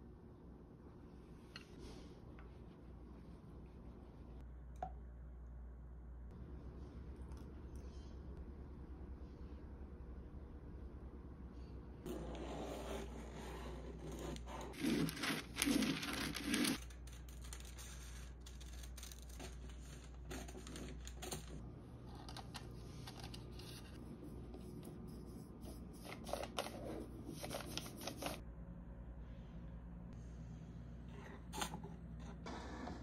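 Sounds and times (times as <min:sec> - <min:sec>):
paper rustling and crinkling: 0:14.7 - 0:21.6, 0:26.0 - 0:28.4.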